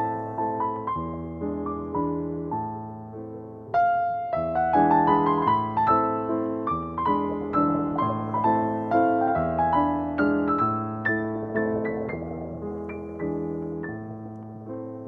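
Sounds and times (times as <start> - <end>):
piano melody: 0.0 - 15.0.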